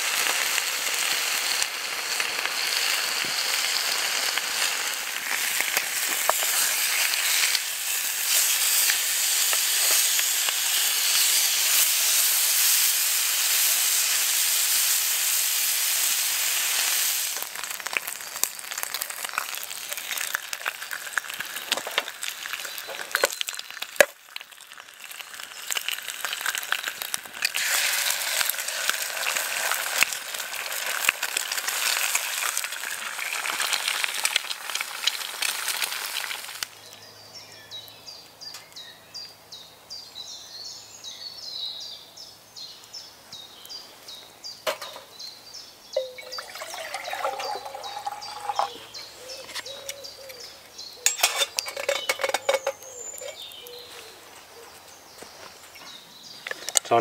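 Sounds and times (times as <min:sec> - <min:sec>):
bacon sizzling in a frying pan: 0:00.0 - 0:36.7, 0:46.0 - 0:49.0
birds calling: 0:42.6 - 0:57.0
metal mug clinking: 0:46.0 - 0:48.8, 0:51.1 - 0:53.4.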